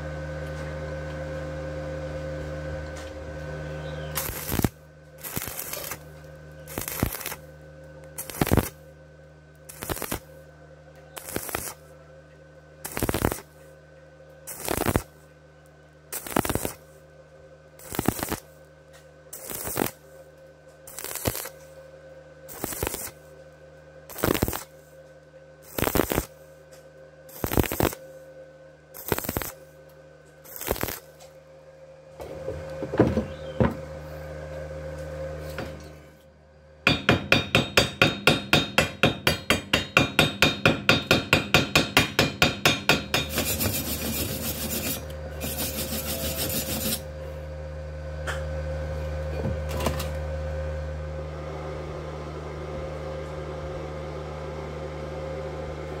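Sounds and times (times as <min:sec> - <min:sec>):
steady low hum: 0:00.0 - 0:56.0
wire brush scrubbing metal: 0:42.8 - 0:47.1.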